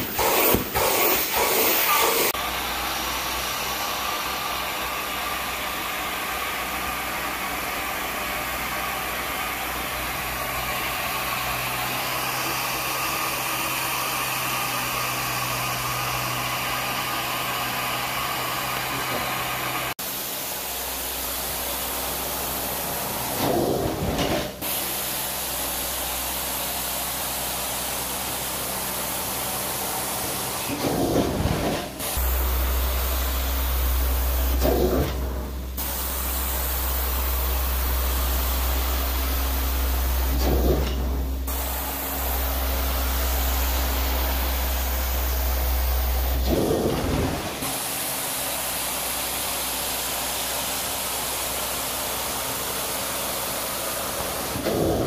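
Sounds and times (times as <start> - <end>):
carpet extraction machine running: 0.0 - 55.0.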